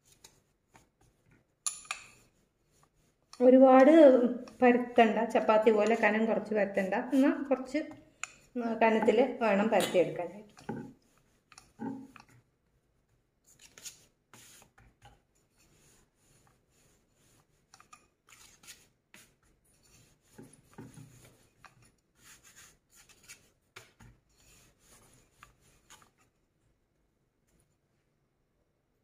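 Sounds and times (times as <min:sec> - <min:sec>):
rolling pin rubbing on dough: 0:02.2 - 0:12.3, 0:13.6 - 0:26.2.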